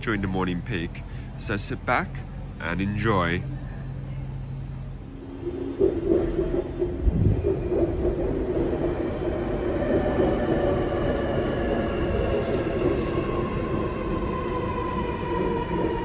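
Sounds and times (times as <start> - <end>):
train wheels rumbling: 4.8 - 16.0.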